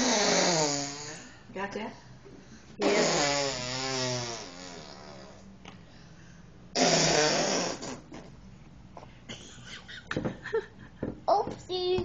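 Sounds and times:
toddler blowing raspberries: 0:00.0 - 0:01.4, 0:02.8 - 0:05.4, 0:06.8 - 0:08.3.

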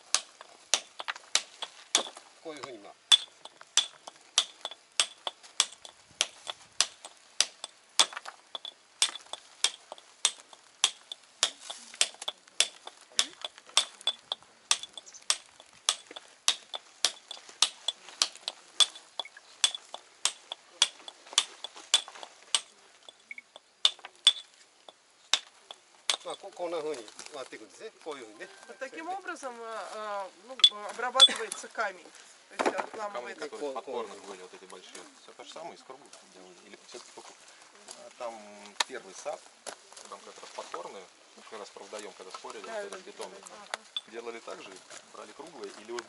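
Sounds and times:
hammer striking steel chisel on stone: 0:00.1 - 0:02.2, 0:03.1 - 0:26.4.

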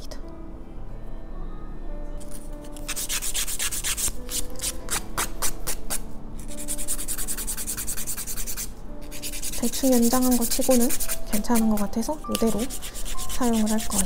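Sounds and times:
nail file rasping: 0:02.7 - 0:06.0, 0:06.6 - 0:14.0.

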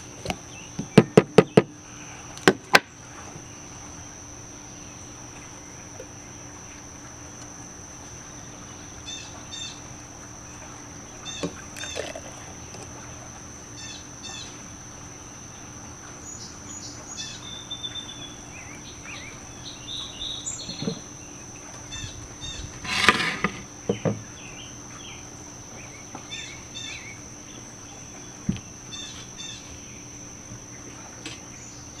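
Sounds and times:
high insect drone: 0:00.0 - 0:32.0
birds chirping: 0:15.5 - 0:22.8.

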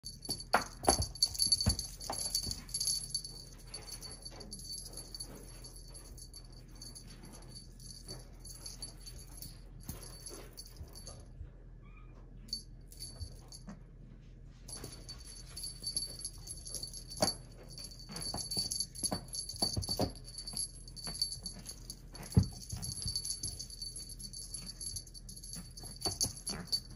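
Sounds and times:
paws tapping and rustling on fabric: 0:14.7 - 0:26.9.

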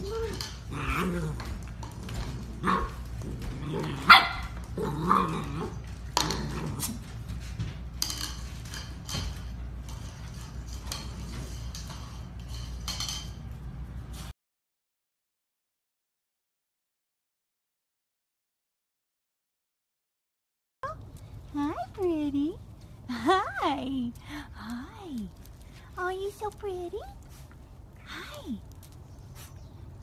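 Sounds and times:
puppies growling: 0:00.0 - 0:07.3
paws scuffling on hard floor: 0:00.0 - 0:14.3
puppies barking: 0:02.2 - 0:05.8.

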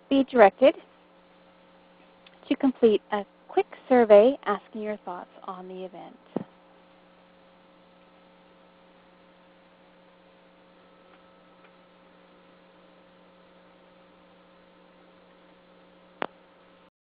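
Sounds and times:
electrical mains hum: 0:00.0 - 0:16.9.

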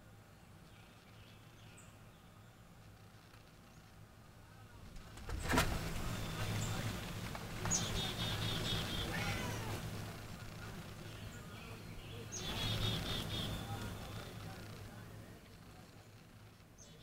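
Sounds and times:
low steady hum: 0:00.0 - 0:17.0
bird singing: 0:00.3 - 0:02.7, 0:07.6 - 0:09.8, 0:10.6 - 0:15.0, 0:15.6 - 0:17.0.

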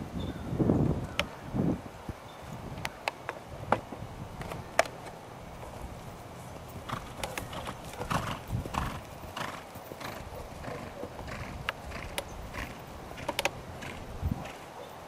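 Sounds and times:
horse hoofbeats on dirt: 0:05.6 - 0:14.8.

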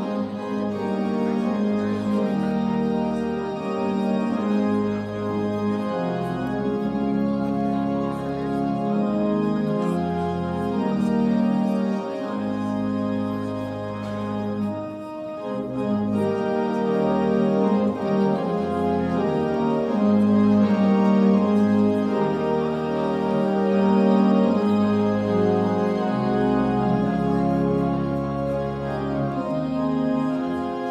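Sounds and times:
slow organ chords: 0:00.0 - 0:30.9.

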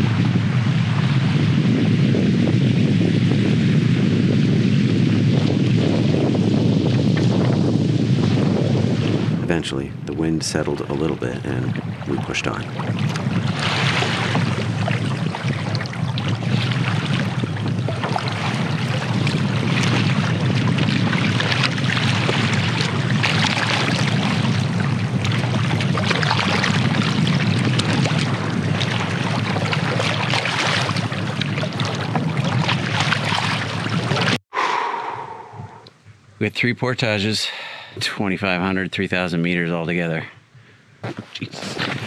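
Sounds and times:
wind on microphone: 0:00.0 - 0:36.4, 0:39.5 - 0:42.0
water splashing against canoe: 0:10.1 - 0:34.4, 0:41.0 - 0:42.0.

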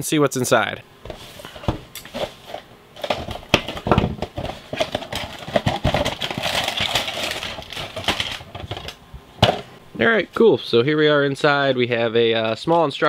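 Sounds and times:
cardboard knocks and rustling: 0:03.0 - 0:06.5.

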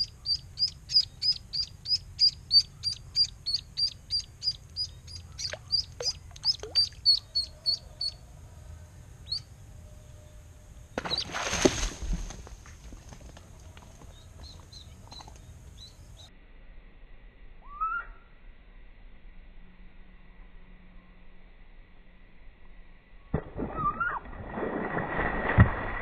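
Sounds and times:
duckling peeping: 0:00.0 - 0:08.2, 0:09.2 - 0:09.5, 0:11.0 - 0:11.3, 0:14.1 - 0:16.3
splash in water: 0:11.0 - 0:12.5, 0:23.4 - 0:26.0.

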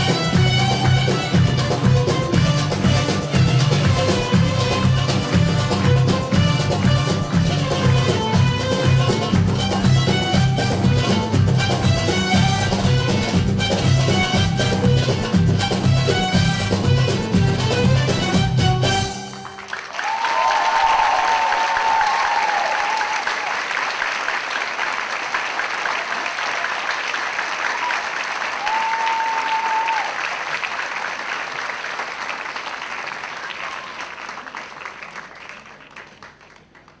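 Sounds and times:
audience applauding: 0:19.2 - 0:37.0.

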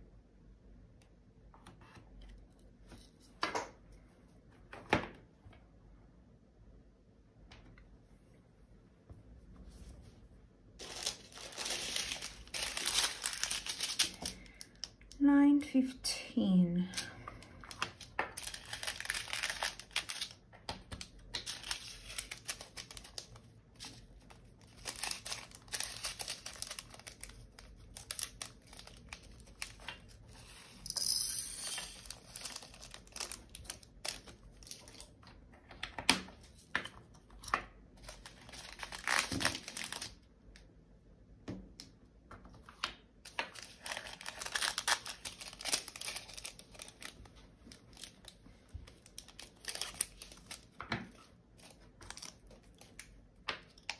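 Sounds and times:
plastic bags crinkling: 0:10.8 - 0:15.1, 0:16.9 - 0:30.4, 0:31.8 - 0:35.2, 0:38.0 - 0:40.2, 0:43.3 - 0:53.1.

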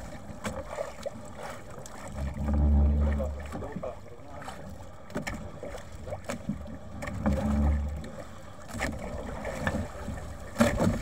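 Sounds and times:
sea wash: 0:00.0 - 0:11.0
wet net knocking against hull: 0:10.5 - 0:11.0.

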